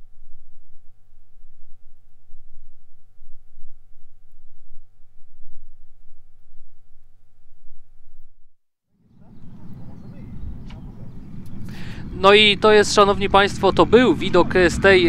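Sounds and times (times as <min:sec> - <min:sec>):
low uneven rumble: 0:00.0 - 0:15.0
electrical hum: 0:09.1 - 0:15.0.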